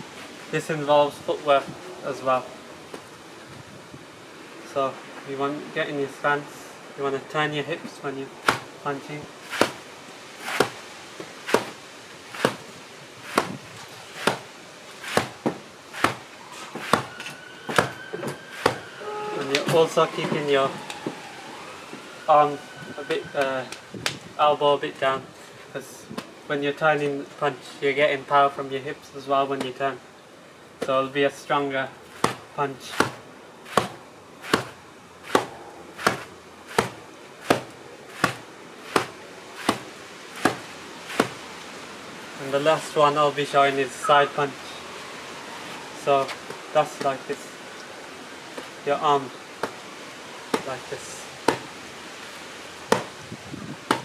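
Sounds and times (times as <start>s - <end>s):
fists thudding on sand bag: 8.4s - 8.7s, 9.5s - 9.8s, 10.4s - 10.8s, 11.4s - 16.2s, 16.8s - 18.0s, 18.6s - 18.8s, 32.2s - 41.4s, 52.9s - 53.2s, 53.8s - 54.0s
fist punches on sandbag: 13.3s - 13.6s.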